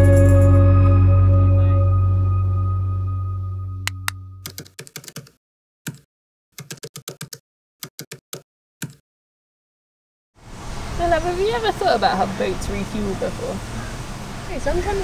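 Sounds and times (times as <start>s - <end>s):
held music chord: 0.0s - 4.4s
computer keyboard typing: 3.9s - 9.0s.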